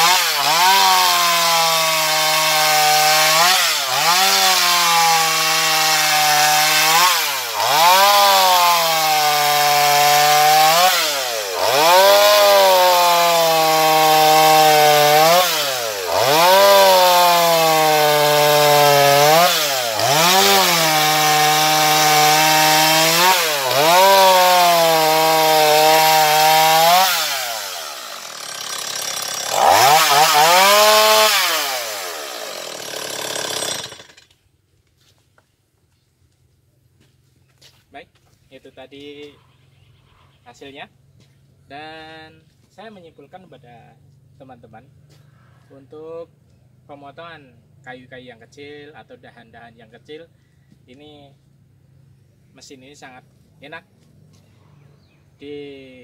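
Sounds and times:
chainsaw cutting through log: 0.0 - 34.4.

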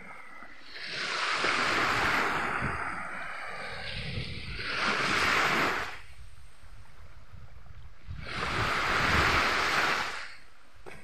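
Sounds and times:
small waves breaking on a beach: 0.0 - 11.0.

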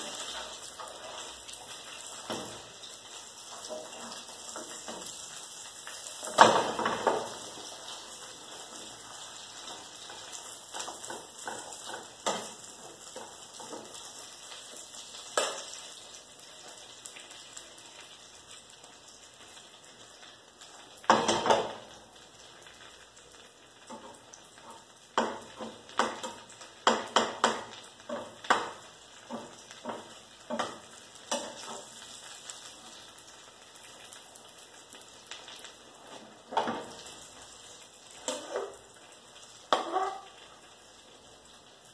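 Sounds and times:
omelette sizzling in pan: 0.0 - 41.9
spatula scraping and knocking pan: 6.0 - 7.8, 8.6 - 14.1, 23.9 - 32.0, 38.2 - 38.8, 39.7 - 40.3.

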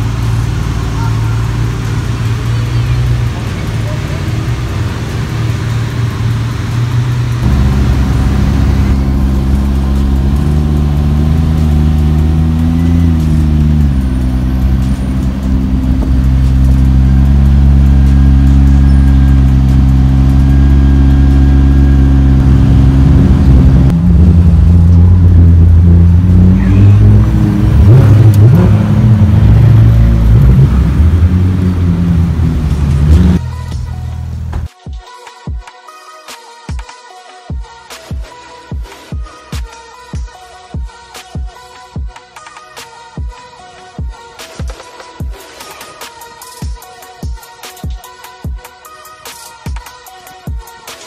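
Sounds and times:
car engine revving: 0.0 - 34.6
car engine idling: 0.0 - 34.7.

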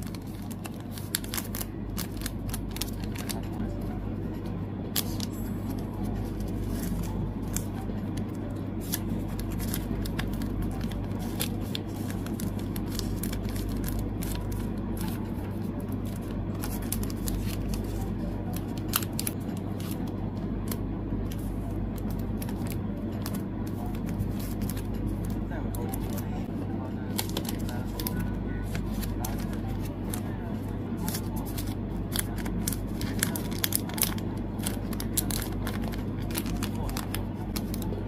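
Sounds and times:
plastic sleeves rustling: 0.0 - 3.7, 4.4 - 20.1, 27.1 - 38.0
steady low hum: 0.0 - 38.0.

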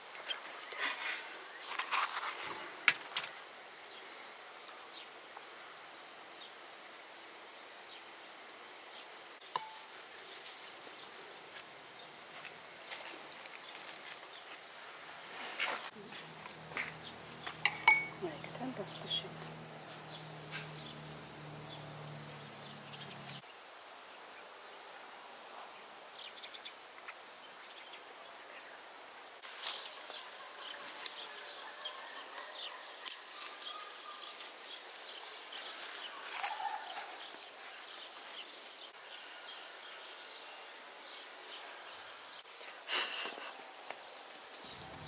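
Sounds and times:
low hum: 16.0 - 23.4.

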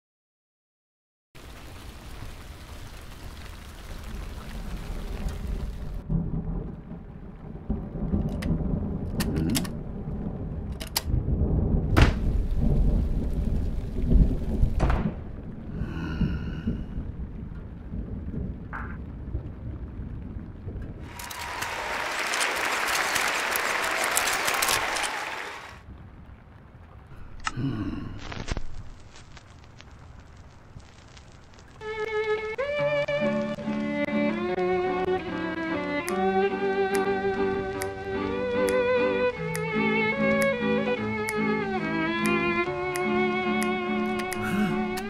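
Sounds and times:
rain hissing: 1.4 - 45.0
rolling thunder with sharp cracks: 4.0 - 24.0.

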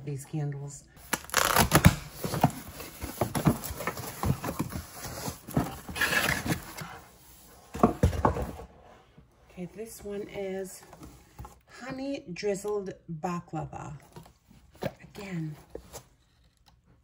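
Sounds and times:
cardboard box being opened: 1.2 - 7.1.

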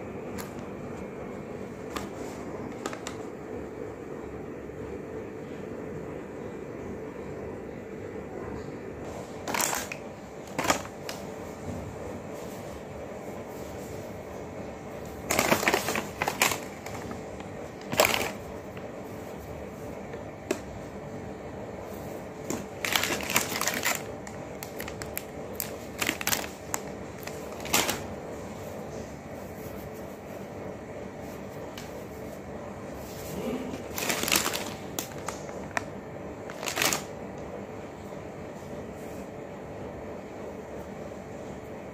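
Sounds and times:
wet wipe rustling and rubbing: 21.8 - 30.5.

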